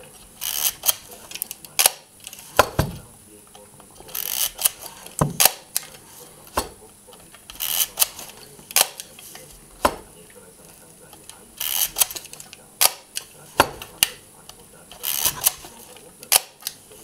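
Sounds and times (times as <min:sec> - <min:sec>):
camera shutter clicks: 0:00.4 - 0:02.0, 0:07.6 - 0:09.2, 0:11.6 - 0:14.2, 0:15.0 - 0:16.8
film advance lever winding: 0:00.4 - 0:02.4, 0:04.1 - 0:04.8, 0:07.6 - 0:08.2, 0:11.6 - 0:13.0.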